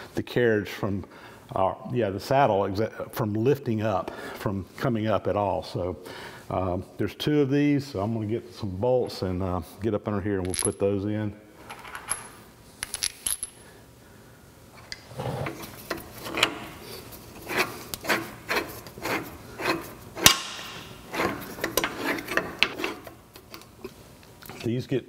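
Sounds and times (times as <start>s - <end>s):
metal clamp scraping and clicking: 14.8s - 24.7s.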